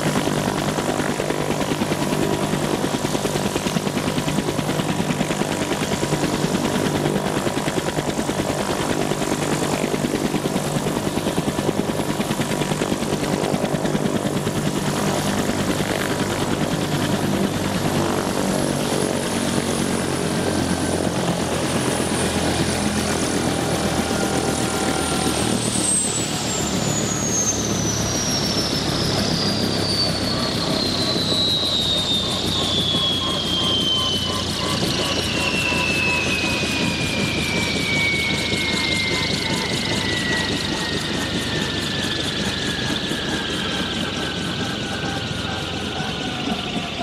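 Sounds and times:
helicopter rotor beating: 0.0s - 47.0s
turbine whine falling in pitch: 19.6s - 47.0s.

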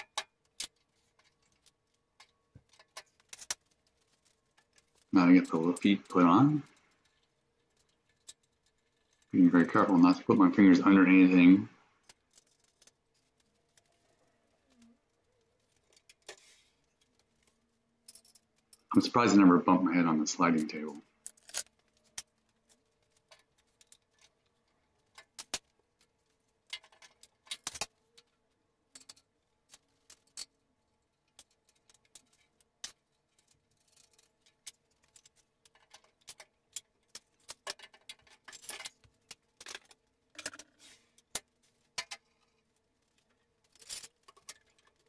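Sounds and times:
tools clattering on concrete floor: 31.4s - 42.5s.

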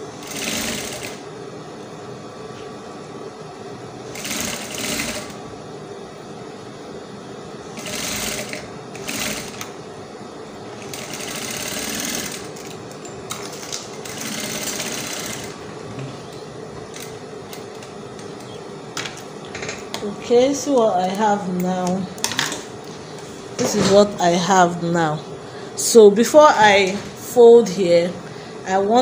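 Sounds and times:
sewing machine stitching: 0.2s - 1.2s, 4.1s - 5.4s, 7.8s - 9.7s, 10.8s - 12.7s, 13.4s - 15.6s
motor hum: 3.0s - 21.2s.

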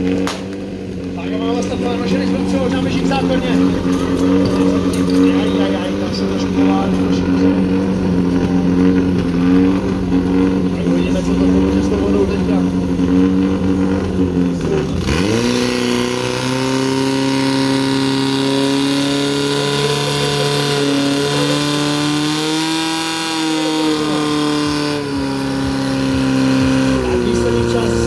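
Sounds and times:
petrol engine revving: 0.0s - 28.0s.

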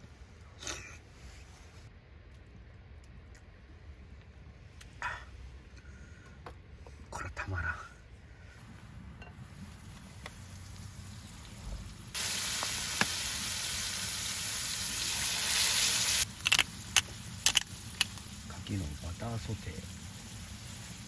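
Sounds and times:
oysters sizzling in a skillet: 9.6s - 21.0s.

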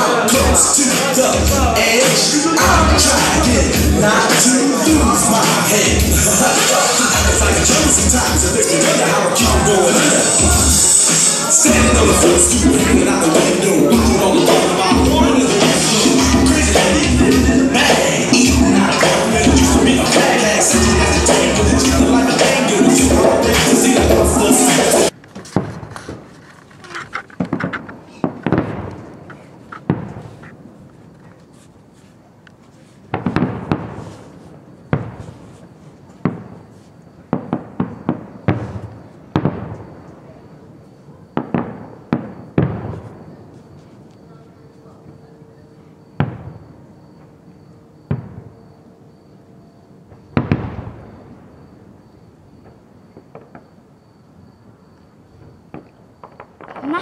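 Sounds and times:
dance music: 0.0s - 25.1s
fireworks banging: 0.0s - 31.5s, 33.0s - 40.4s, 41.3s - 44.0s, 46.2s - 47.3s, 48.1s - 48.8s, 50.1s - 51.8s, 52.6s - 53.8s, 55.4s - 57.0s
faint firework crackles: 24.6s - 45.2s, 46.1s - 49.3s, 50.0s - 57.0s
firework shells bursting: 25.0s - 31.3s, 33.1s - 35.6s, 50.1s - 51.2s, 55.7s - 57.0s.

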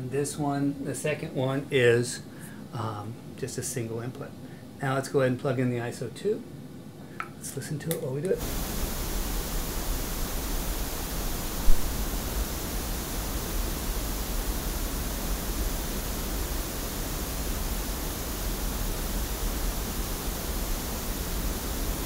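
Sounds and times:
pink noise test signal: 8.3s - 22.0s.

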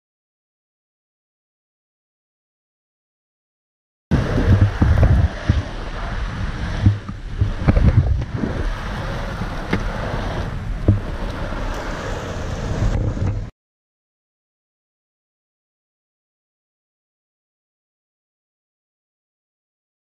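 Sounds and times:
skateboard wheels rumbling on asphalt: 4.1s - 13.5s
wind noise on microphone: 4.1s - 13.5s.

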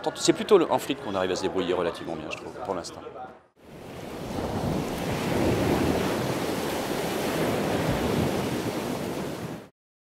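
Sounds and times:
wind: 0.0s - 9.7s
waves on open water: 3.6s - 9.7s.

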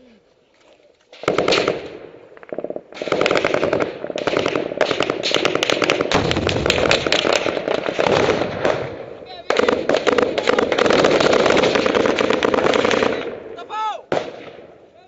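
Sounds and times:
automatic gunfire: 1.2s - 13.4s.

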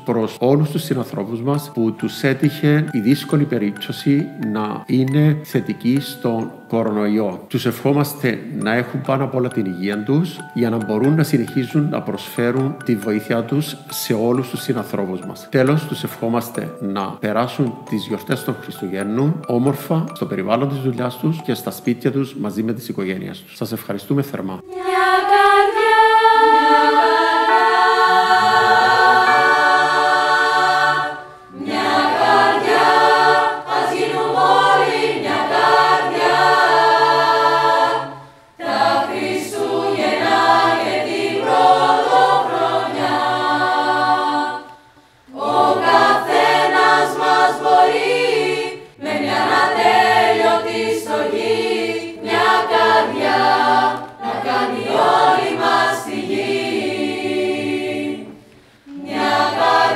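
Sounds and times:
choir singing: 24.4s - 59.9s.

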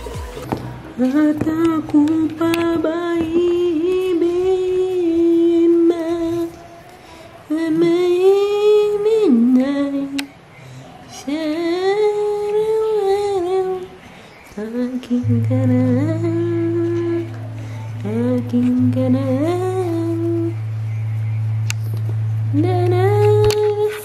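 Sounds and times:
steady low tone: 14.6s - 24.0s.

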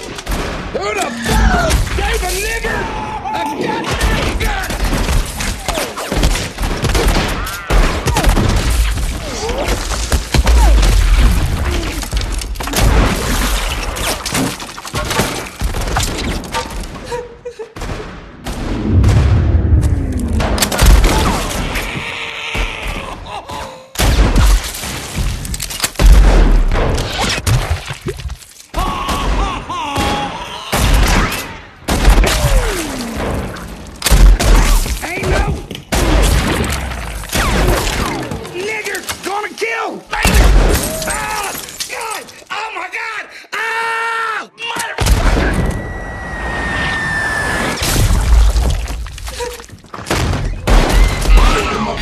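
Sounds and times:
man screaming and yelling: 0.8s - 4.7s, 28.7s - 31.0s, 38.6s - 45.0s
gunshots: 3.6s - 17.0s, 17.8s - 21.8s, 24.0s - 27.9s, 28.9s - 39.5s, 40.1s - 41.7s, 50.0s - 52.0s.

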